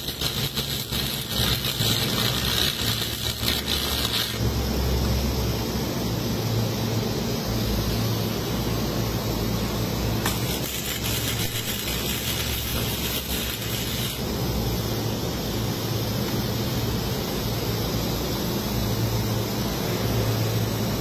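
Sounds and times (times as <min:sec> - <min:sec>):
crackling welding arc: 0:00.0 - 0:05.0, 0:09.6 - 0:21.0
steady low hum: 0:00.0 - 0:21.0.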